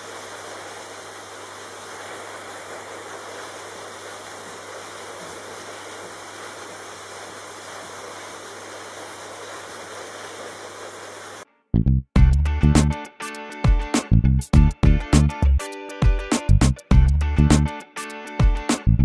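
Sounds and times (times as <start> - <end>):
vacuum cleaner running: 0.0 - 11.5.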